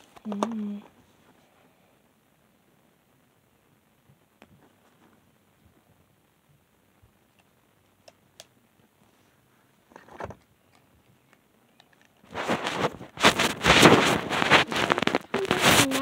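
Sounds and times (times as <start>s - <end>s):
phone microphone rubbing: 12.3s - 16.0s.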